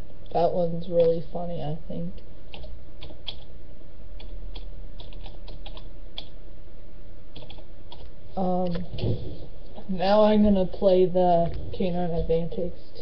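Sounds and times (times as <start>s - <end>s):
steady low hum: 0.0s - 13.0s
typing on computer keyboard: 4.2s - 6.3s, 7.3s - 8.1s.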